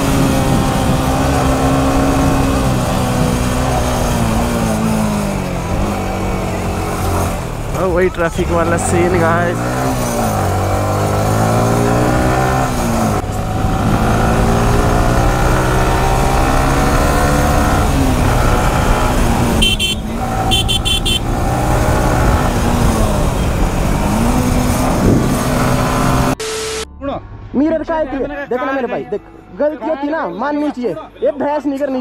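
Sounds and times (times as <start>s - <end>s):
motorcycle engine revving: 0.0s - 26.4s
road and wind noise: 0.0s - 30.1s
motorcycle horn honking: 19.5s - 21.4s.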